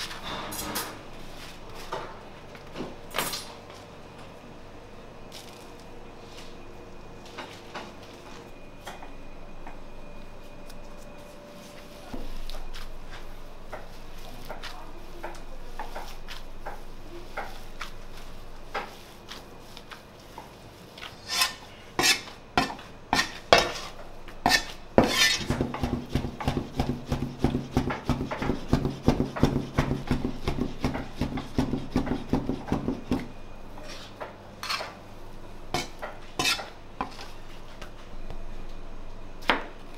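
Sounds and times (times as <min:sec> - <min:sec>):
steady hum: 0:00.0 - 0:39.9
knife chopping on cutting board: 0:24.5 - 0:33.3.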